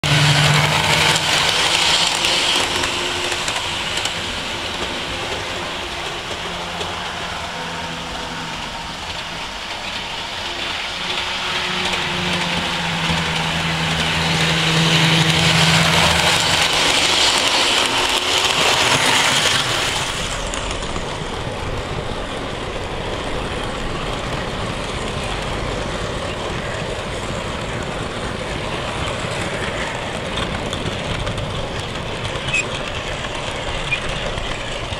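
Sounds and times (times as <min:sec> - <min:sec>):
model train wheels rolling: 0:00.0 - 0:34.9
model train motor whirring: 0:00.4 - 0:06.4.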